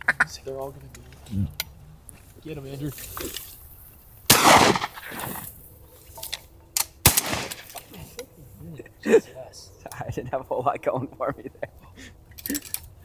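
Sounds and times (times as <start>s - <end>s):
shotgun shots: 4.3s - 5.2s, 7.0s - 7.8s.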